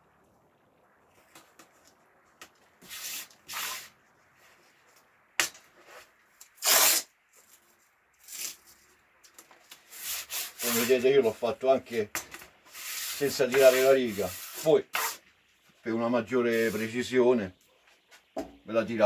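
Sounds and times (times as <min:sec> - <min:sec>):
masking tape tearing: 0:06.4 - 0:07.1.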